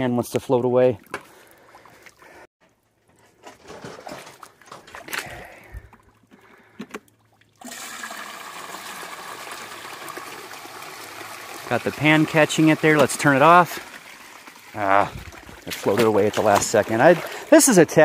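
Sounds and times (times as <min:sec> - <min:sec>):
light knocks and splashes: 0:03.4 - 0:07.6, 0:15.0 - 0:17.6
water gushing through a sluice: 0:07.6 - 0:18.0.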